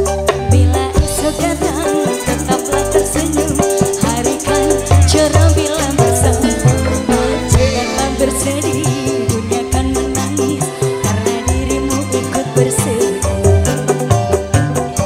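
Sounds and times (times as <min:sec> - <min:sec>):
bass guitar: 0:00.0 - 0:15.0
drum kit: 0:00.0 - 0:15.0
electric guitars: 0:00.0 - 0:15.0
keyboard: 0:00.0 - 0:15.0
hand drums: 0:00.4 - 0:12.0
rattling shaker percussion: 0:01.0 - 0:15.0.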